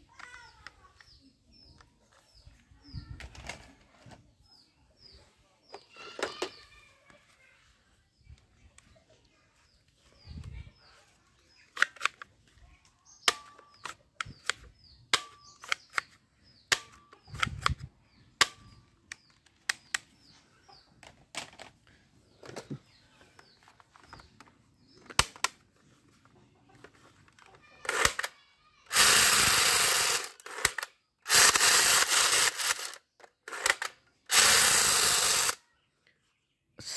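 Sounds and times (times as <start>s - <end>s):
plastic toy guns clicking: 11.7s - 12.3s, 13.2s - 20.1s, 25.0s - 25.6s, 27.3s - 28.3s, 28.9s - 35.6s
loud rattling burst: 28.9s - 35.6s.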